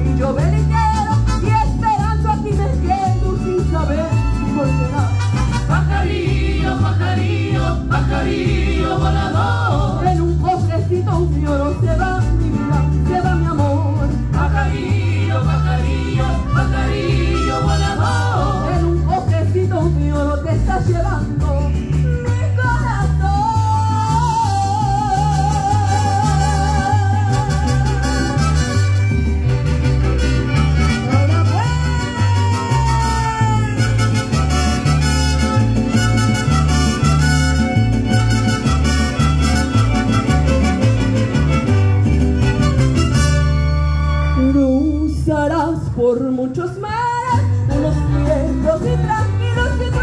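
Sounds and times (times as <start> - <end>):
repeating bass line: 0.0 - 45.5
violins playing melody: 33.9 - 44.8.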